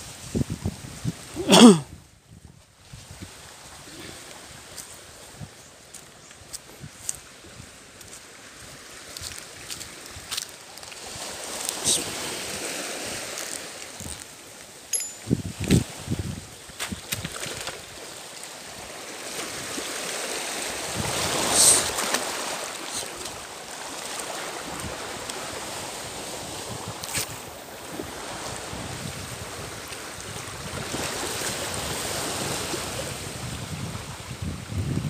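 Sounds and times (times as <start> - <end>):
waves washing over stony shore: 8.4 - 14.9, 15.6 - 34.4
wind buffeting microphone: 15.2 - 18.0, 20.8 - 22.1, 24.6 - 35.0.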